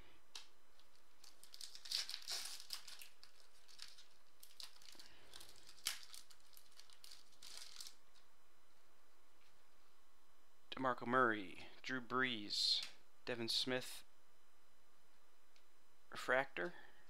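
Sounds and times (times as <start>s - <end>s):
foil wrapper crinkling and tearing: 0.8s - 8.2s.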